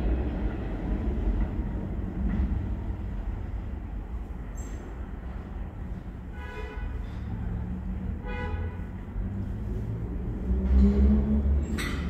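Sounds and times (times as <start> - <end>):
subway train rumbling in tunnel: 0.0 - 12.0.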